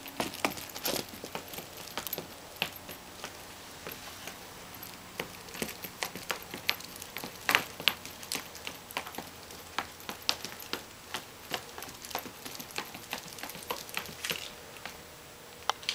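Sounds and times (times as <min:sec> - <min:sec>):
dog footsteps on hardwood floor: 0:00.0 - 0:15.0.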